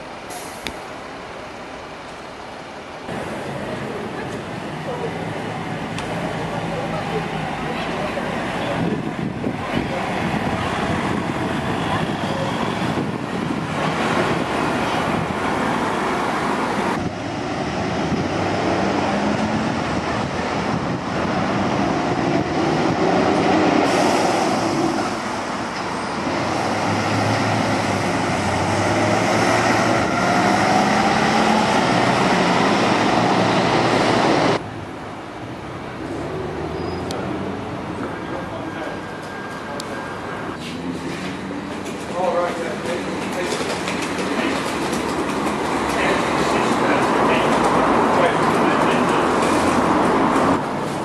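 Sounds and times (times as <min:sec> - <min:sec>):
bus station background: 0:00.0 - 0:51.0
buses passing and pulling away: 0:00.0 - 0:51.0
road traffic: 0:00.0 - 0:51.0
accelerating vehicle whine: 0:09.8 - 0:34.7.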